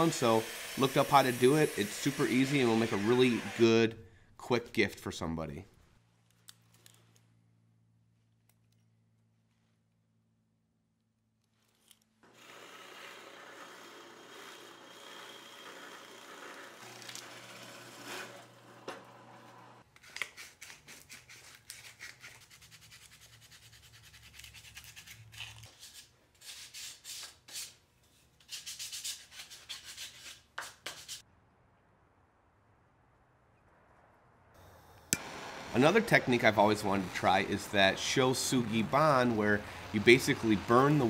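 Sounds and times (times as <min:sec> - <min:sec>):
hand sanding wood: 0:00.0 - 0:03.7, 0:28.4 - 0:31.2, 0:35.2 - 0:41.0.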